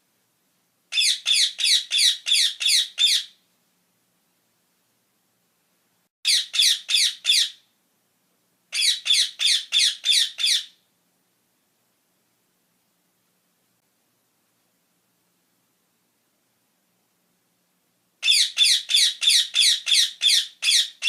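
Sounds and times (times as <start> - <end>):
parakeets screeching: 1.0 - 3.3, 6.3 - 7.6, 8.8 - 10.7, 18.2 - 21.0.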